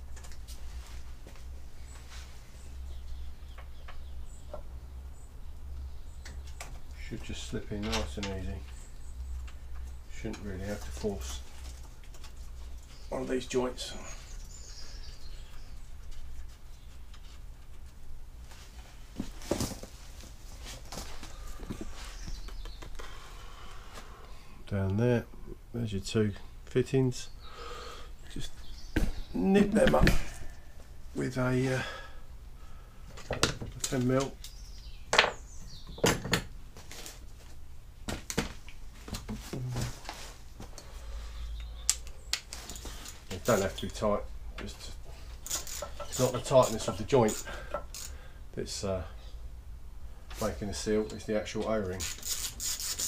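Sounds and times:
quiet handling noises: 0:36.8 - 0:48.2
hand tools clicking and knocking: 0:45.4 - 0:48.2.

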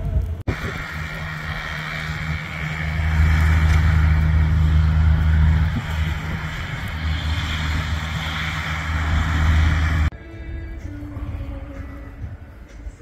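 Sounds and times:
compact tractor engine running: 0:00.1 - 0:10.1.

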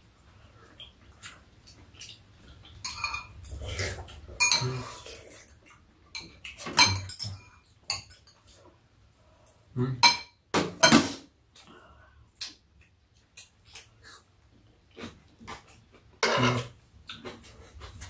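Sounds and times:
utensils clinking against ceramic bowls: 0:02.8 - 0:03.6, 0:04.4 - 0:08.6.

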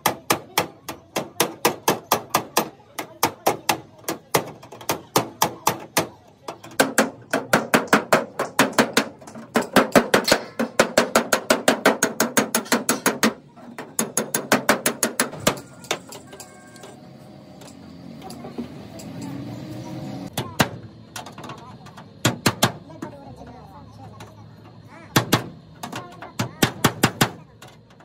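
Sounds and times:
hammer striking steel: 0:06.7 - 0:16.9.

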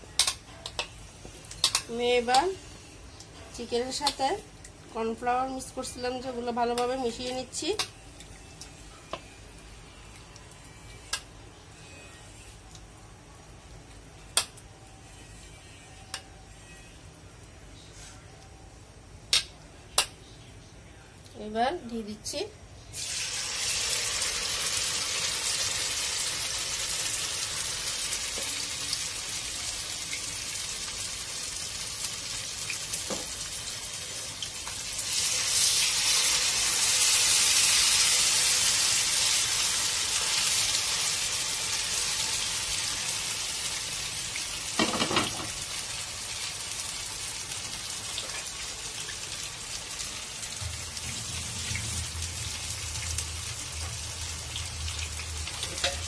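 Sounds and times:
chicken sizzling in hot oil: 0:22.9 - 0:56.0.

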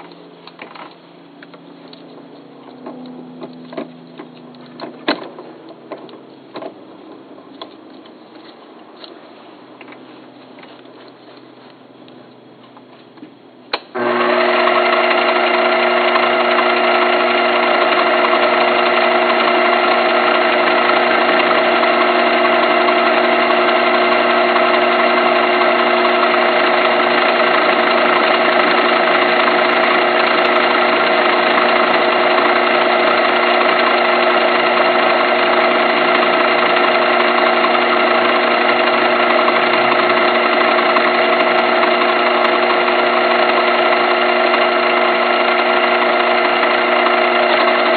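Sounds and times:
metal lathe motor whining: 0:14.0 - 0:47.9.

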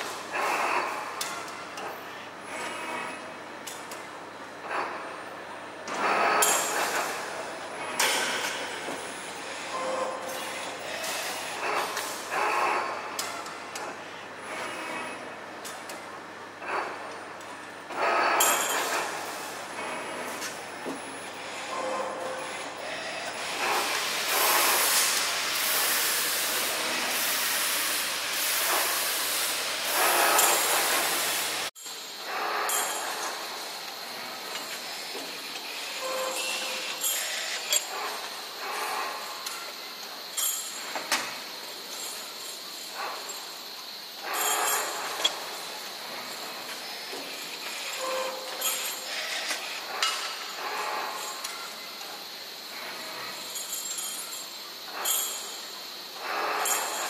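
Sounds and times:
wire-bending machine hissing: 0:00.0 - 0:57.0
metal rods clinking: 0:53.5 - 0:55.5.

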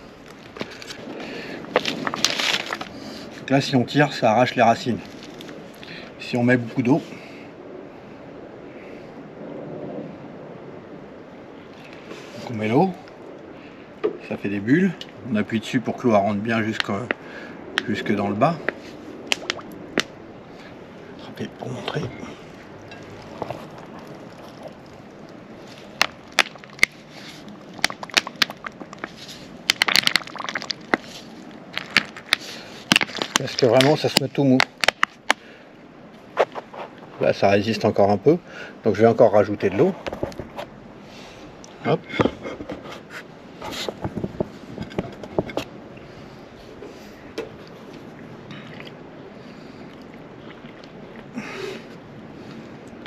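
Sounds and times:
plastic bottle crackling: 0:01.7 - 0:03.0, 0:22.9 - 0:35.4.

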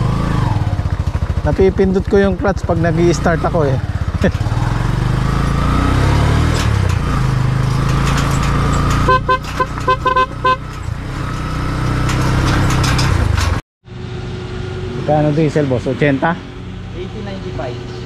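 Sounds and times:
small motorcycle engine running: 0:00.0 - 0:18.0
horn short beeps: 0:09.0 - 0:10.7.

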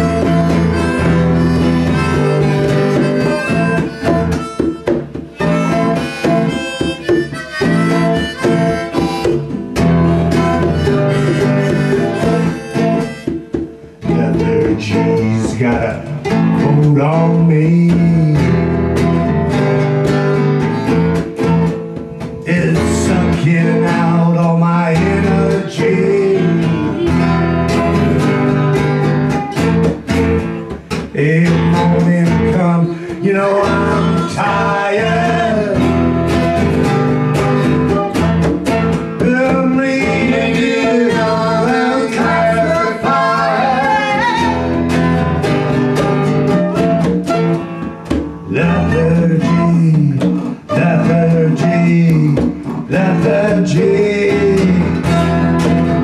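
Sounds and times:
congas: 0:00.0 - 0:56.0
strummed guitars: 0:00.0 - 0:56.0
man singing into a microphone: 0:14.0 - 0:18.8, 0:22.4 - 0:27.4, 0:31.1 - 0:36.2, 0:39.2 - 0:44.8, 0:48.4 - 0:55.9.

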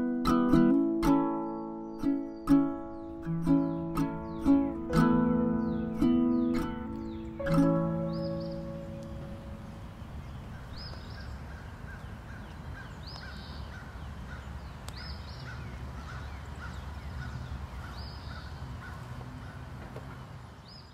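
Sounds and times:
lower repeating bird note: 0:01.4 - 0:11.4
high bird call: 0:01.9 - 0:19.6.

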